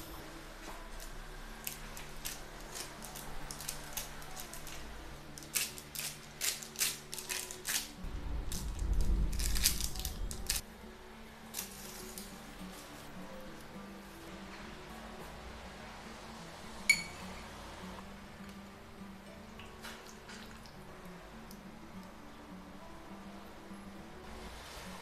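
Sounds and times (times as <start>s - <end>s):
baking paper crinkling: 0.9s - 10.6s.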